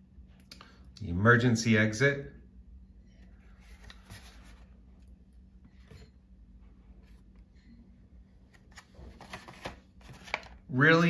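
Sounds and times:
plastic packaging rustling: 8.6 - 10.6.

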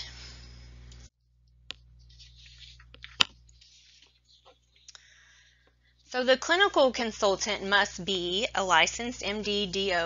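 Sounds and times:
steady background hum: 0.0 - 10.0.

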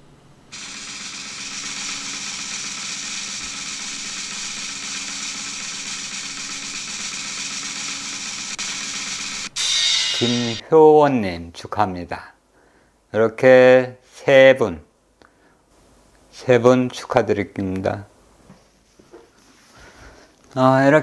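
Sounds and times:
roulette wheel whirring effect: 0.5 - 10.6.

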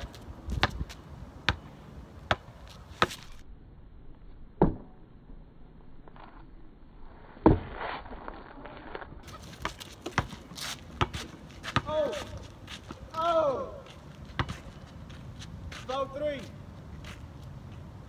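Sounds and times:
basketball bouncing on asphalt: 0.0 - 3.4, 4.6 - 4.9, 9.2 - 15.8.

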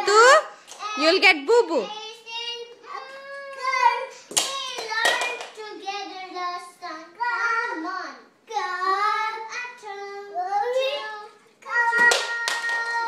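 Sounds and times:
child singing: 1.9 - 13.0.

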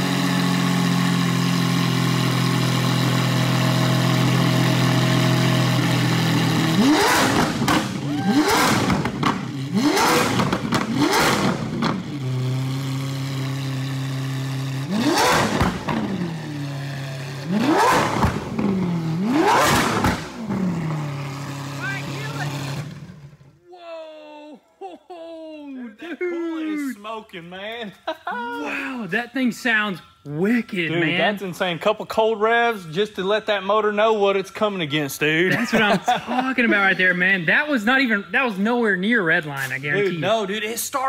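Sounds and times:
car engine idling: 0.0 - 23.5
engine throttle blips: 0.0 - 23.6.

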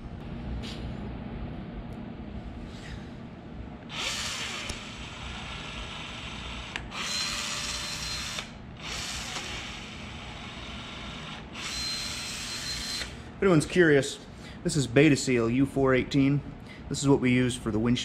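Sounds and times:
caulking gun motor whirring: 3.9 - 13.2.

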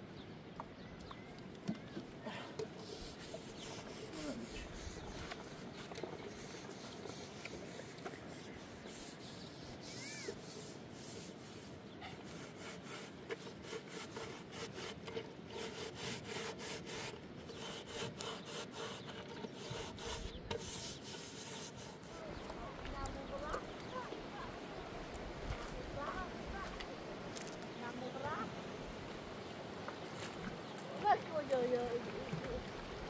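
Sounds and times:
faint steady rustle: 0.0 - 33.0
metal pot being scrubbed: 2.6 - 22.6.

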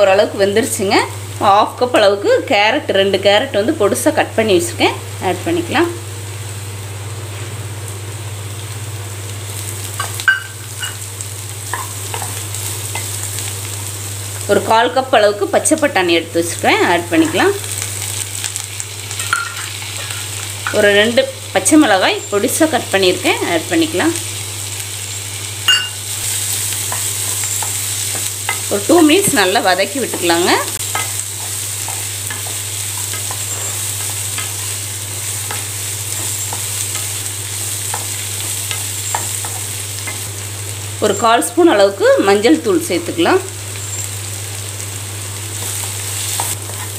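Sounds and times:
vegetables frying in oil: 0.0 - 46.9.

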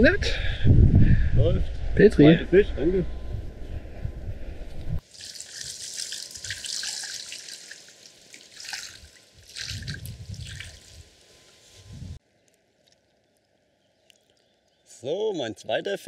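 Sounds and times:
water splashing and trickling: 5.0 - 12.2.

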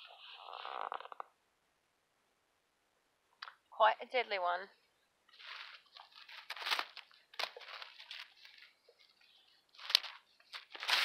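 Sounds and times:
leaves and twigs crunching underfoot: 5.3 - 8.8.

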